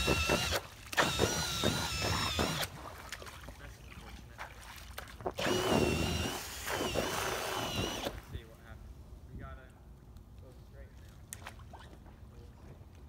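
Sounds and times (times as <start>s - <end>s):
drill motor whine: 0.0s - 2.7s, 5.4s - 8.1s
propeller churning water: 0.0s - 8.9s.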